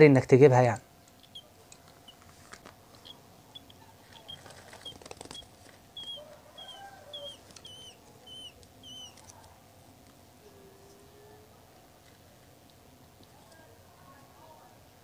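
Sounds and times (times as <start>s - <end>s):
bird chick chirping: 1.0s - 2.2s, 3.0s - 9.3s.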